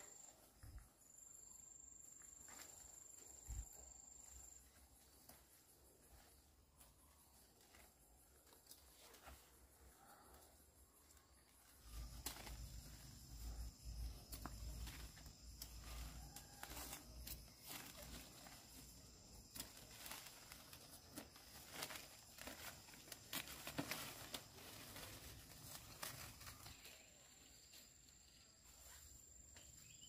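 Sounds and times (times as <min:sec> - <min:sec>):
high insect drone: 0:00.0 - 0:30.0
rustling and tearing plant material: 0:14.5 - 0:26.9.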